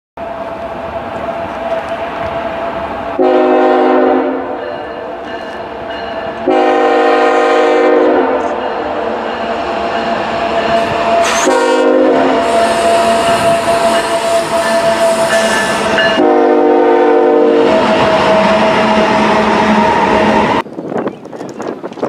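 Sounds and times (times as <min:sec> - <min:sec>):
passing train rumble: 0:00.2 - 0:22.0
locomotive air horn blasts: 0:03.2 - 0:05.1, 0:06.4 - 0:09.8, 0:10.7 - 0:20.4.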